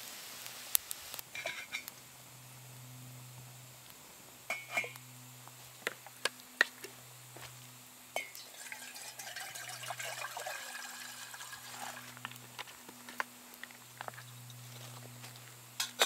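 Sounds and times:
water and steam crackling hiss: 0.0s - 14.2s
kettle clinking on metal stove: 4.5s - 5.0s, 8.1s - 12.2s.

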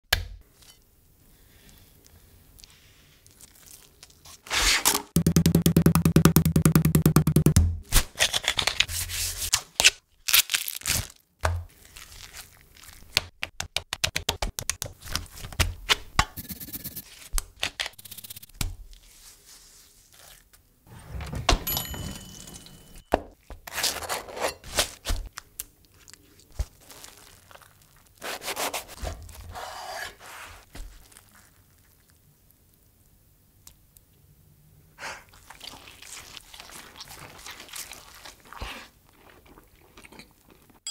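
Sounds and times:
meat mallet pounding: 5.2s - 7.9s.

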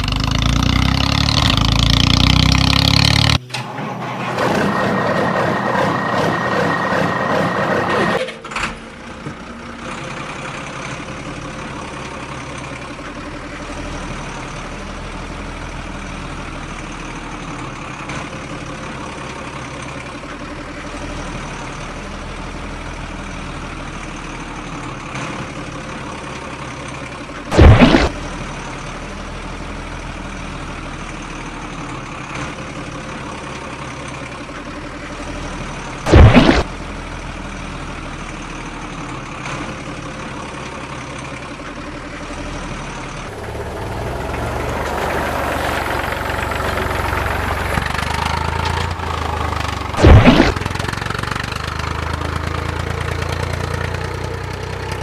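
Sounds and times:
vehicle engine idling: 3.3s - 36.1s, 36.7s - 55.0s
loud busy sound: 3.4s - 8.5s, 36.1s - 36.7s, 50.0s - 50.7s
loud brief deep sound: 50.0s - 50.6s.

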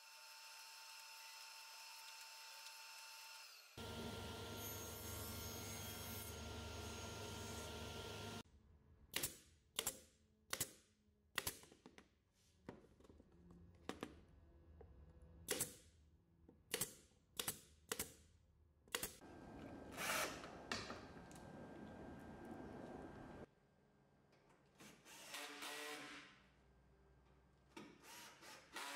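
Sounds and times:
cordless drill running: 19.8s - 20.6s.

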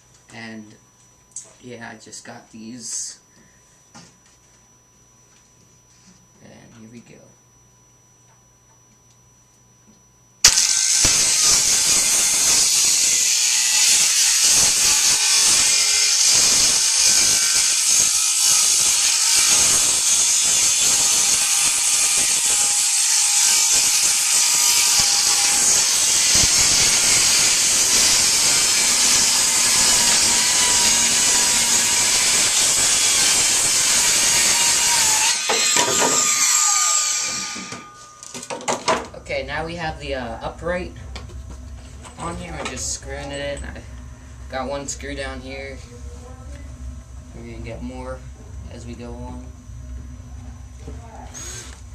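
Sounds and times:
circular saw cutting plywood: 10.4s - 38.0s
saw winding down: 10.4s - 38.0s, 51.3s - 51.9s.

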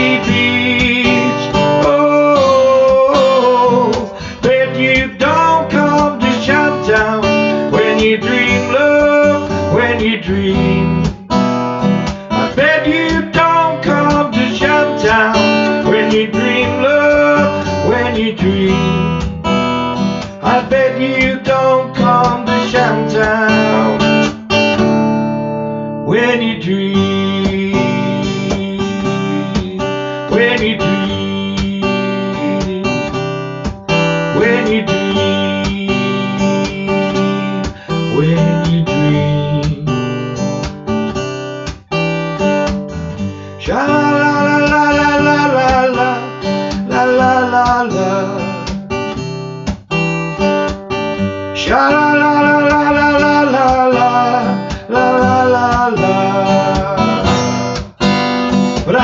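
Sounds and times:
wordless singing voice: 0.0s - 11.2s, 12.2s - 19.4s, 20.2s - 24.3s, 26.1s - 33.4s, 34.2s - 40.1s, 43.4s - 48.7s, 51.6s - 57.6s, 58.8s - 59.0s
acoustic guitar strumming: 0.0s - 59.0s.

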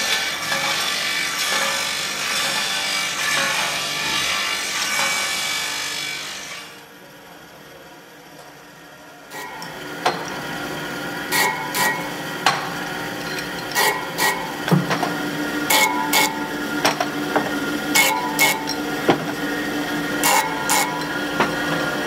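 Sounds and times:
electric motor humming: 9.4s - 22.0s
metal parts clicking: 13.1s - 14.4s.

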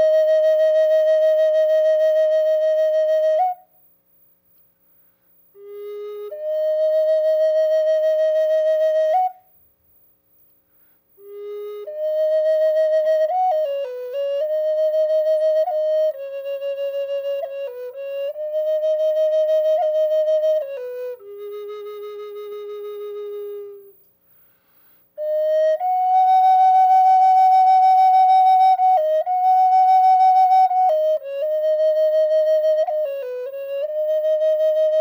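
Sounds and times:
solo flute melody: 0.0s - 3.8s, 5.6s - 9.6s, 11.2s - 24.0s, 25.2s - 35.0s.

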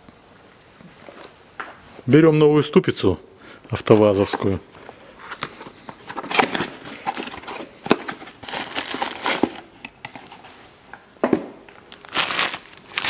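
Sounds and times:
cardboard rustling and crinkling: 3.8s - 10.7s, 11.7s - 13.0s.

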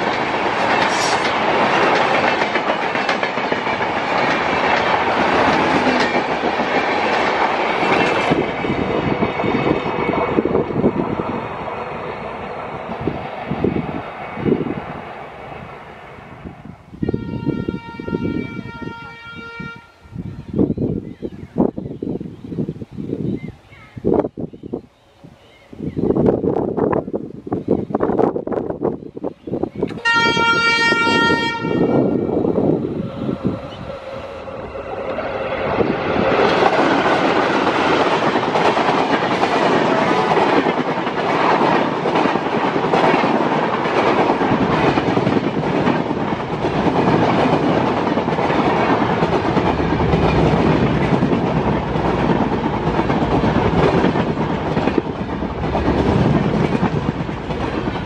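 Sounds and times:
train wheels clattering over rail joints: 0.0s - 10.3s, 36.3s - 58.0s
diesel locomotive engines: 0.0s - 58.0s
locomotive horn blast: 17.0s - 20.0s, 30.0s - 32.4s.

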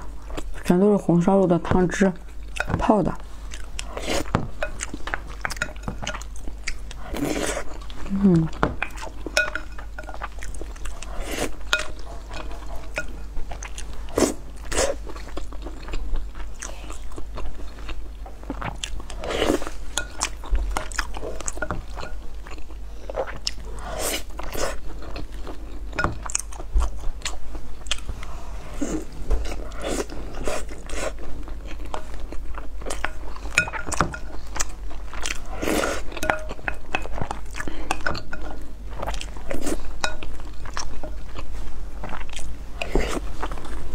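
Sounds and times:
chewing and biting food: 8.8s - 28.1s, 29.5s - 43.8s.

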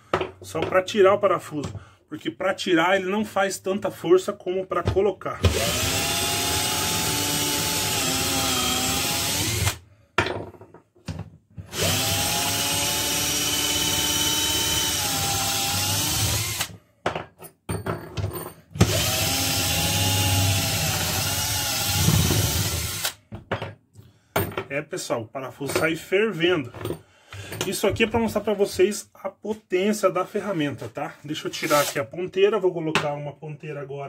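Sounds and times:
cordless drill motor whine: 5.5s - 9.8s, 11.7s - 16.7s, 18.8s - 23.2s.

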